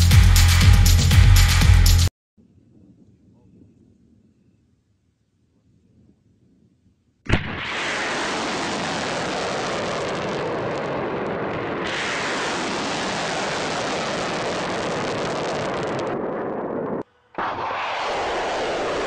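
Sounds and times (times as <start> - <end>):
rocket motor firing: 7.3 - 19.0.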